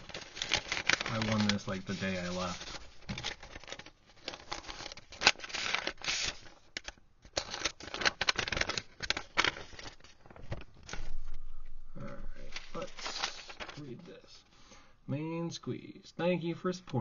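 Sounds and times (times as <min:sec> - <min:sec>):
paper envelope tearing: 0:00.0 - 0:11.2, 0:12.4 - 0:14.0.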